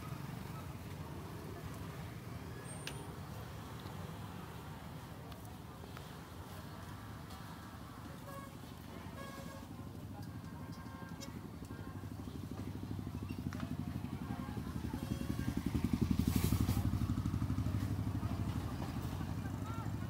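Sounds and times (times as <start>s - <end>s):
small engine running at low revs: 12.1s - 20.0s.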